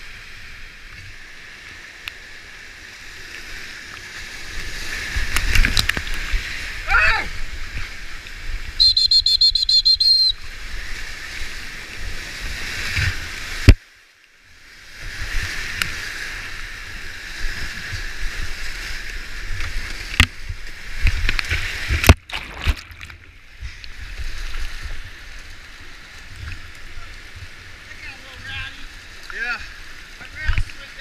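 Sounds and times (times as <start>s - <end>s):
whitewater rushing and splashing: 0.0s - 31.0s
water slapping a boat: 3.0s - 13.8s, 14.8s - 31.0s
warbling whistle: 8.8s - 10.4s.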